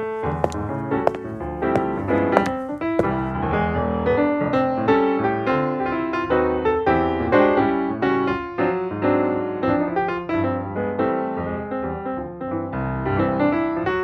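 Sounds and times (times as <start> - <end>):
piano music: 0.0 - 4.4.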